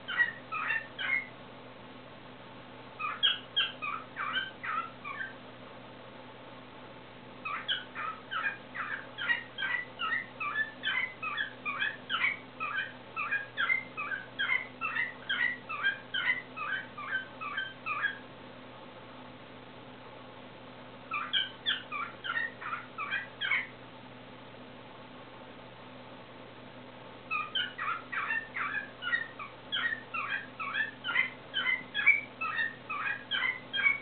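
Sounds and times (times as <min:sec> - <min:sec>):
cockatiel whistling song: 0:00.1 - 0:01.3, 0:03.0 - 0:05.4, 0:07.4 - 0:18.2, 0:21.1 - 0:23.7, 0:27.3 - 0:34.0.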